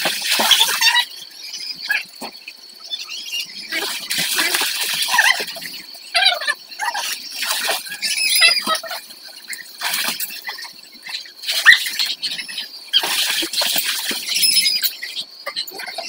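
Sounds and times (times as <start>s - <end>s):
water splashing in a pool: 0.0s - 1.1s, 3.6s - 16.0s
children shouting and squealing: 6.2s - 9.1s.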